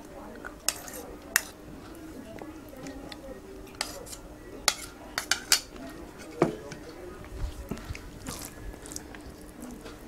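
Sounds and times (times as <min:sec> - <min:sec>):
fingers squishing rice: 0:07.7 - 0:10.0
person chewing: 0:07.7 - 0:10.0.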